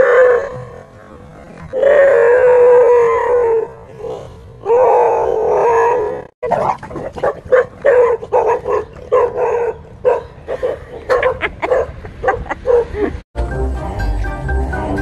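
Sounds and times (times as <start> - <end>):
dogs barking: 6.6 - 13.0.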